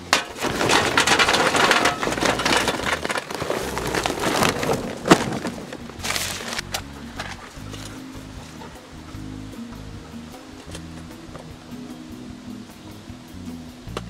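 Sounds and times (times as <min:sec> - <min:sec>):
newspaper crumpling: 0:00.4 - 0:08.0.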